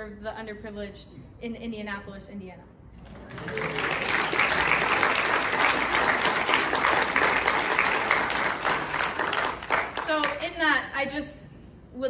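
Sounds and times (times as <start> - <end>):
crowd applauding: 3.0 - 10.4.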